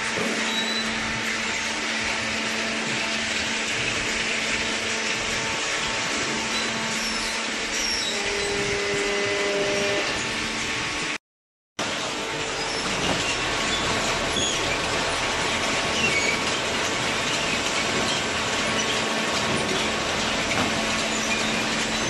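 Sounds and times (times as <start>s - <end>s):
machinery whirring: 11.8s - 22.0s.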